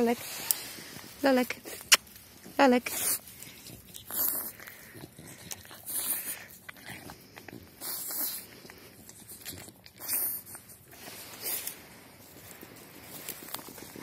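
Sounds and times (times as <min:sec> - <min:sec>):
dog breathing noisily and snuffling: 0:00.0 - 0:14.0.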